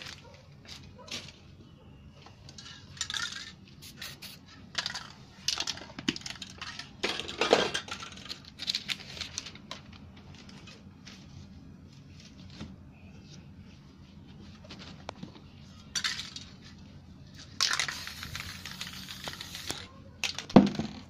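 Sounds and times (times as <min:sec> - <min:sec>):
paper page rustling and crinkling: 0:08.6 - 0:15.3.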